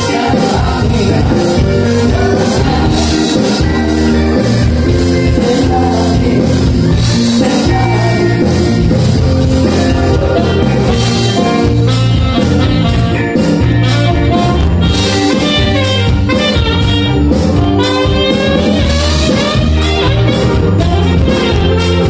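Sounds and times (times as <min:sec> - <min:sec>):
live band playing: 0:00.0 - 0:22.0.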